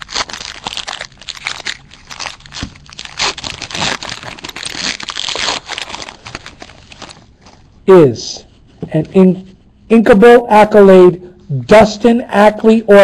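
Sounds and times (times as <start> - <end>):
foil wrapper tearing and crinkling: 0.0 - 7.3.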